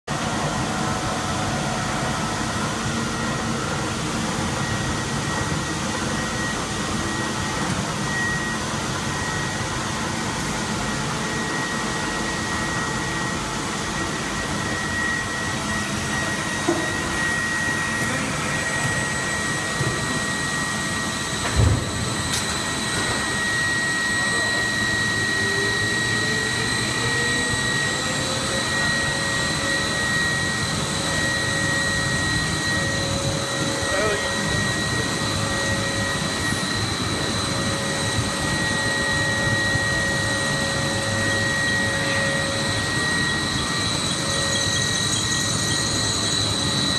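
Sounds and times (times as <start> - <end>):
machine drone with high whine: 0.0 - 46.9.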